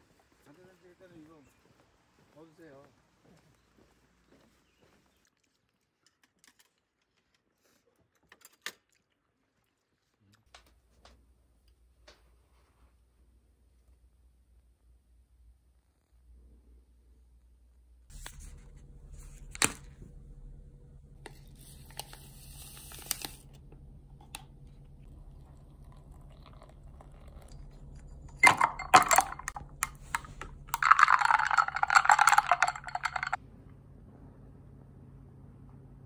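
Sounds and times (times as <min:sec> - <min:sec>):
liquid pouring into a glass: 0:25.1 - 0:33.4.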